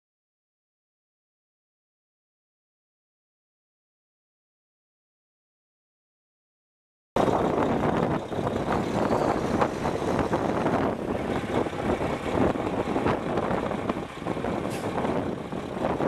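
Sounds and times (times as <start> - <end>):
diesel truck engine running: 7.2 - 16.0
wind buffeting microphone: 7.2 - 16.0.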